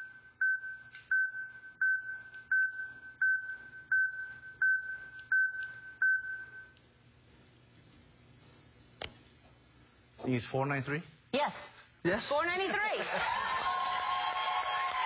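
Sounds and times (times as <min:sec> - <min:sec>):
high-pitched electronic beeps: 0:00.0 - 0:06.8.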